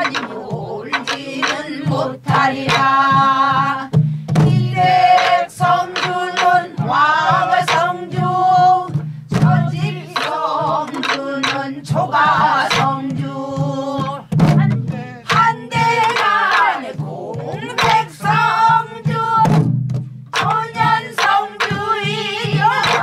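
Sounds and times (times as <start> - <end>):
barrel drum stick strokes: 0.0 - 13.2
group singing folk song: 0.0 - 23.0.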